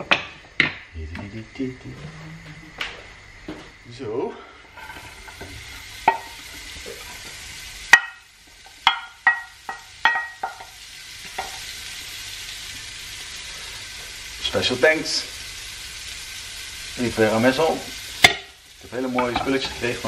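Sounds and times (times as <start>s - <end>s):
green beans sizzling in pan: 0.0s - 20.0s
spatula knocking against pan: 7.9s - 8.2s, 8.8s - 10.7s.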